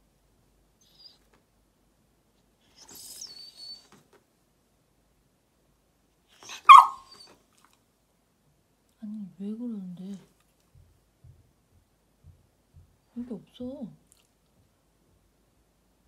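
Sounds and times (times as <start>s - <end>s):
dog whining: 0.8s - 1.4s, 2.6s - 4.0s, 6.3s - 7.7s
dog barking: 6.4s - 7.3s.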